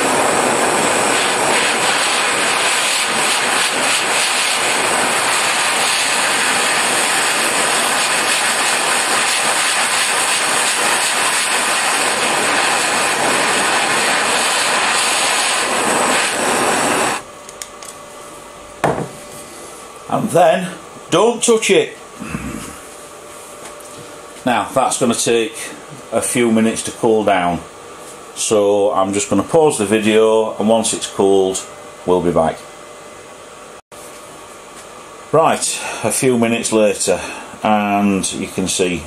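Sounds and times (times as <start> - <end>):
blowtorch flame burning: 0.0 - 18.1.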